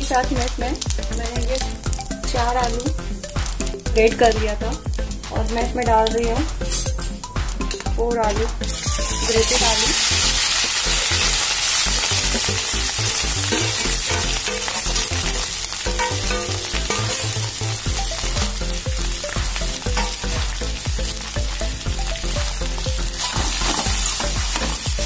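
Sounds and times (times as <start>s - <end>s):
potato sizzling in hot oil: 0.0s - 5.2s, 8.6s - 25.0s.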